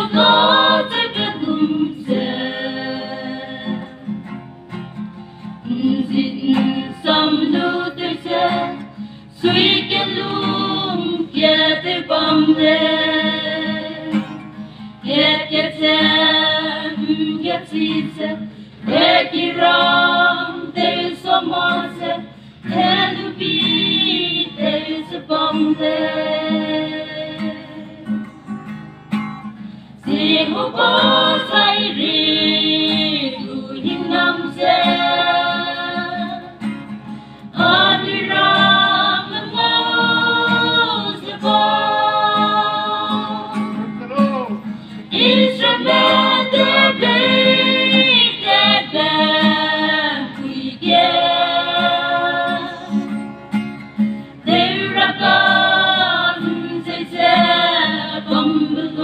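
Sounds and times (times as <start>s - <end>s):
group of voices singing in harmony: 0.0s - 4.3s, 5.6s - 28.3s, 30.0s - 44.0s, 44.9s - 53.3s, 54.4s - 59.0s
guitar accompaniment: 0.0s - 59.0s
singers breathing: 8.9s - 9.4s, 14.5s - 15.0s, 18.4s - 18.9s, 22.2s - 22.7s, 29.6s - 30.0s, 37.0s - 37.6s, 44.6s - 45.1s.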